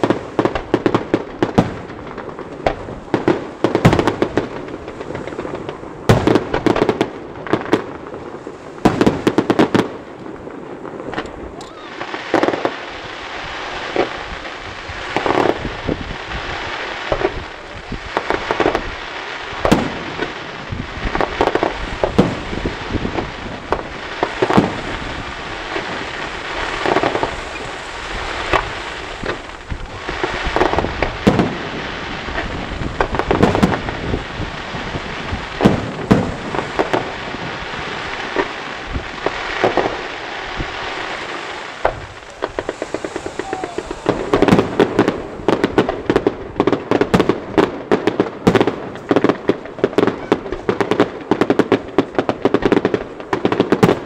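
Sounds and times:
firework crackling: 0.0s - 54.0s
firework shells bursting: 34.8s - 47.7s.

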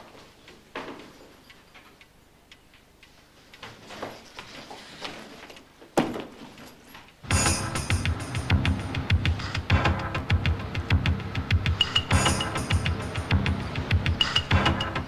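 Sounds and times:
loud music: 7.3s - 15.0s.

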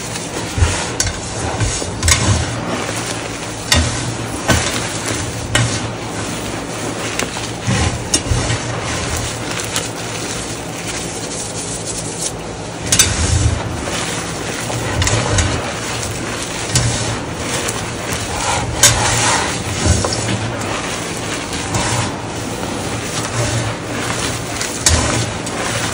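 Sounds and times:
chalk crunching by hand: 6.0s - 12.5s.

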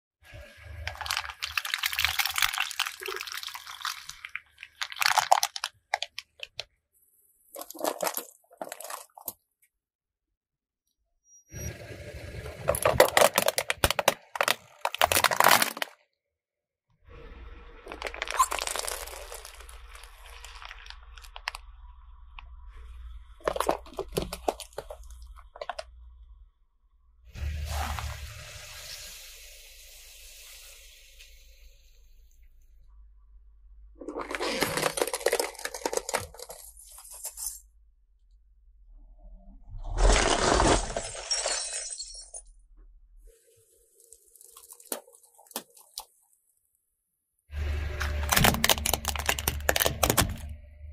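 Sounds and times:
plastic bottle crackling and crunching: 0.8s - 6.7s, 7.6s - 9.4s, 12.7s - 16.0s, 17.9s - 21.6s, 23.4s - 25.9s, 34.0s - 37.4s, 44.0s - 46.2s, 47.8s - 50.6s.

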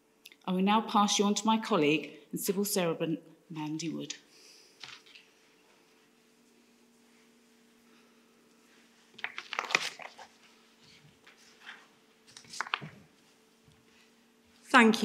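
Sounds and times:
rustling and clicking handling noises: 4.8s - 5.3s, 8.5s - 13.9s.

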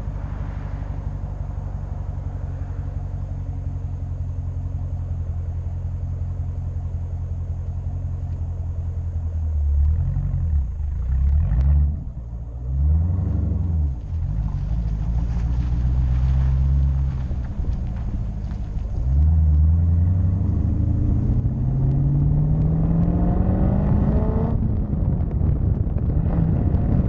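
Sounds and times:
car exhaust rumbling and revving: 0.0s - 27.0s.

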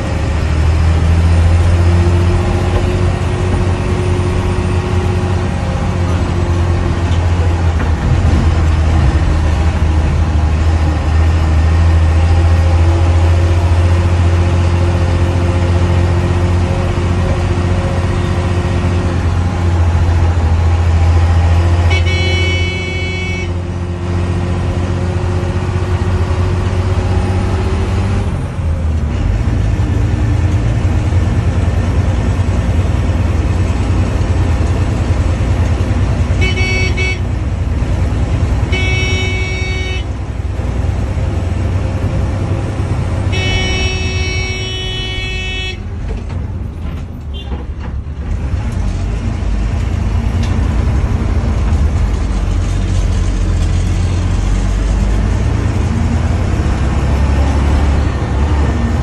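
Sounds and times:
bus engine drone: 0.0s - 59.0s
bus horn blasts: 21.6s - 23.8s, 36.2s - 37.5s, 38.6s - 40.4s, 43.2s - 46.0s, 47.3s - 47.6s.

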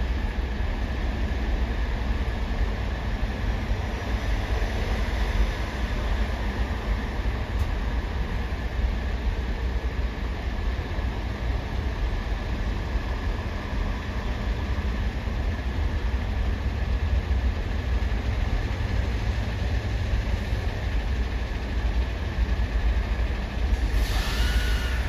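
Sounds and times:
heavy engines idling: 0.0s - 25.0s
short hiss: 23.8s - 25.0s.

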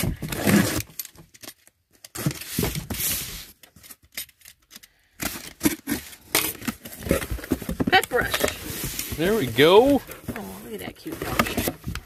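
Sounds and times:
box cutter slitting packing tape: 0.3s - 1.1s
cardboard box shifted on table: 5.6s - 12.0s.

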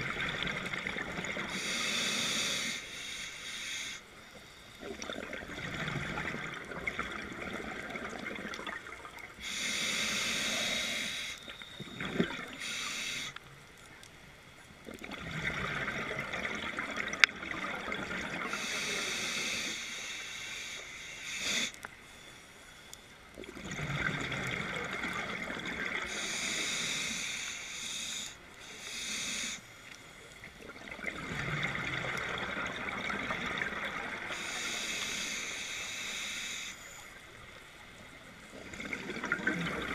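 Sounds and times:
hissing regulator inhale: 1.3s - 5.1s, 9.4s - 13.4s, 18.5s - 23.1s, 26.0s - 30.3s, 34.1s - 37.3s.

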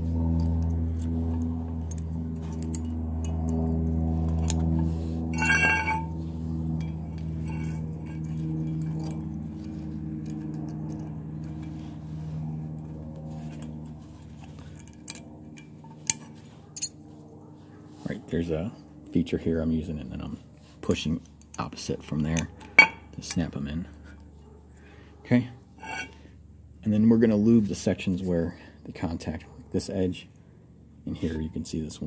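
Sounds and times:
steady low hum: 0.0s - 32.0s
bright ringing metal clink: 5.3s - 9.4s.

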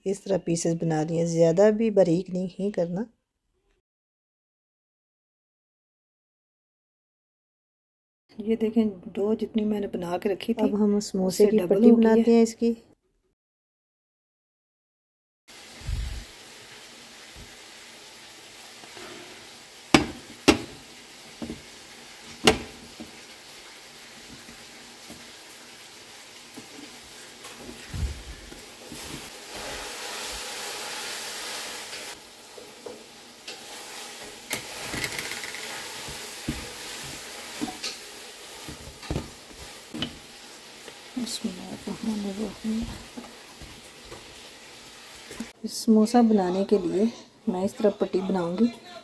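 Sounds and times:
dough knocking on glass cooktop: 19.9s - 20.8s, 21.4s - 21.7s, 22.4s - 23.1s.

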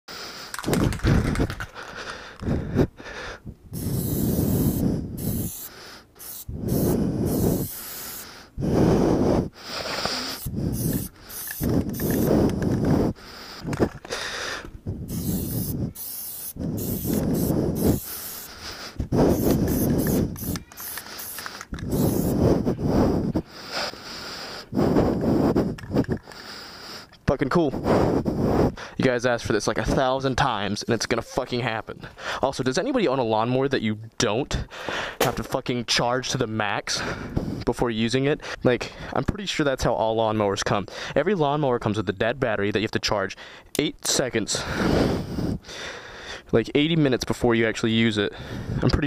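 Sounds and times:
wind buffeting microphone: 2.4s - 5.5s, 6.5s - 7.8s, 10.4s - 14.1s, 14.7s - 16.0s, 16.6s - 18.1s, 19.0s - 20.6s, 21.7s - 23.5s
spray can hissing: 3.8s - 8.3s, 10.2s - 12.4s, 15.1s - 18.6s, 19.3s - 22.4s.

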